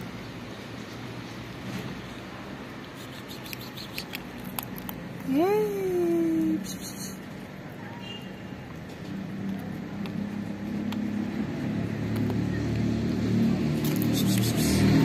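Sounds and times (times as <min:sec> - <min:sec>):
vehicle engine approaching: 0:08.7 - 0:15.0.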